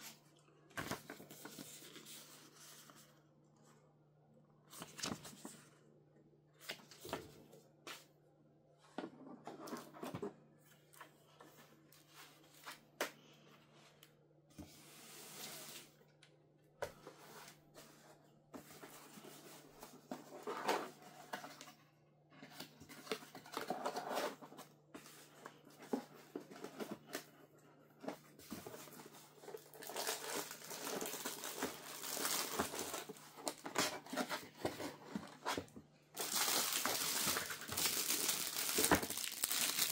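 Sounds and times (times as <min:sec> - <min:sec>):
plastic and cardboard rustling: 0:16.9 - 0:21.8, 0:22.4 - 0:39.9.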